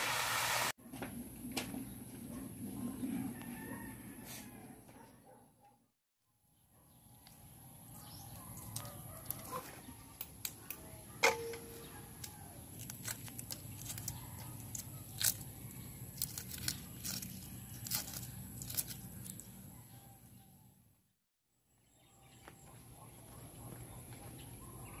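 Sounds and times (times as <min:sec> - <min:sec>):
tap on metal basin ringing: 0:11.2 - 0:11.7
eggshells cracking: 0:12.2 - 0:19.5.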